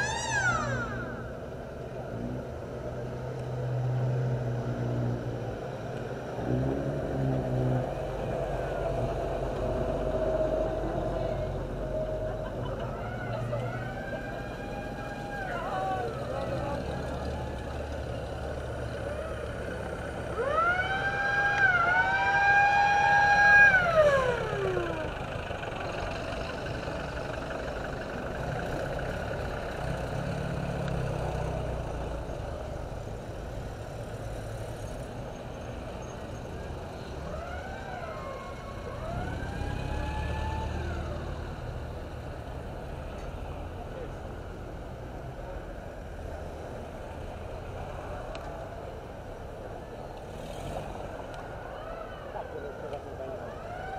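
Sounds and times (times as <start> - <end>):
siren wailing: 0.0 - 1.5, 12.8 - 16.3, 20.3 - 25.1, 53.4 - 53.9
low rumble of jeeps: 0.0 - 53.9.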